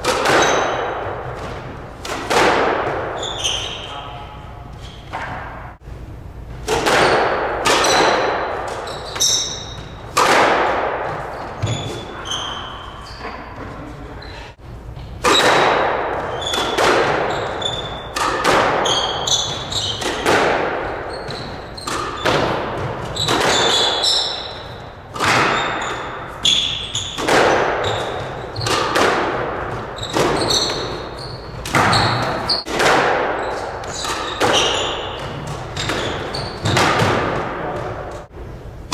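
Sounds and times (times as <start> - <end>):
squash ball hitting racquets and walls: 0.0 - 14.0, 14.6 - 38.9
shoes squeaking on wooden floor: 3.0 - 5.2, 7.8 - 10.1, 11.1 - 15.2, 16.2 - 18.2, 18.8 - 20.3, 21.0 - 29.0, 29.6 - 32.7, 33.4 - 38.3.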